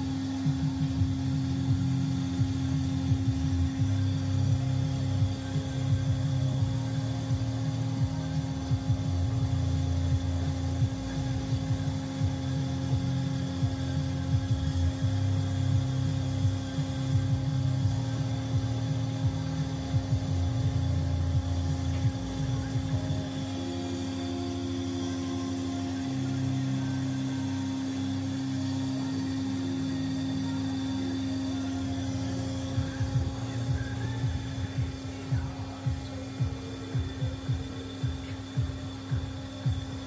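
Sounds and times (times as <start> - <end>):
higher machine tone: 0.0 - 40.0
machine humming: 0.0 - 40.0
low pumping rumble: 28.0 - 40.0.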